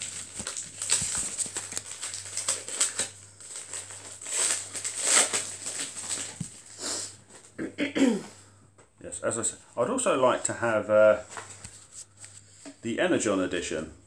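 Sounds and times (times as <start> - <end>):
card wrappers crinkling: 0.0 - 7.5, 11.2 - 12.5.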